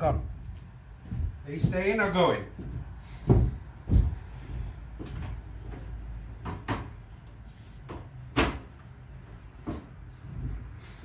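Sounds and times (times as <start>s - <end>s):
heavy dull thumps: 1.0s - 5.3s.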